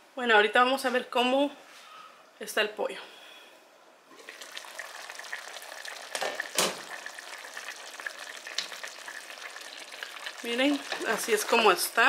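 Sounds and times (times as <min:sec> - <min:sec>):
stew bubbling and crackling: 0:04.1 - 0:11.8.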